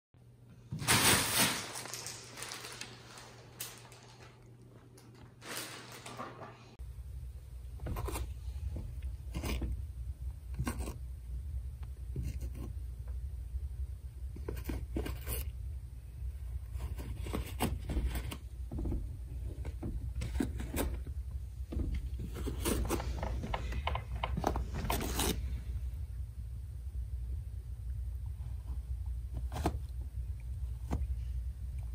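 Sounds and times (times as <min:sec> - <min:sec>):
paper towel ripping and rustling: 0:00.7 - 0:04.5, 0:05.4 - 0:06.5
steady low hum: 0:06.7 - 0:31.9.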